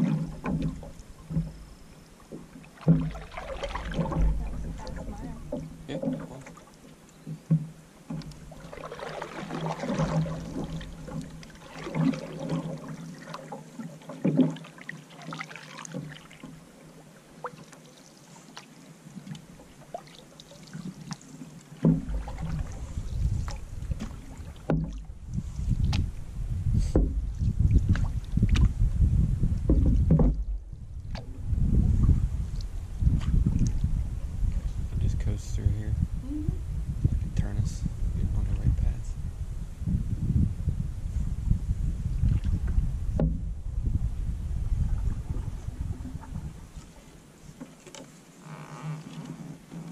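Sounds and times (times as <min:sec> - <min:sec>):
paddle splashing water: 0:00.0 - 0:34.9, 0:41.9 - 0:43.6, 0:44.5 - 0:49.9
low rumble: 0:03.0 - 0:06.0, 0:22.0 - 0:46.7.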